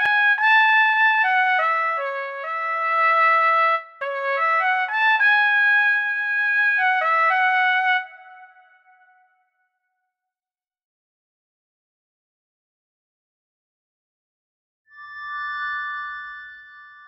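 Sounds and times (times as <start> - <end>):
piccolo trumpet melody: 0.0 - 9.2.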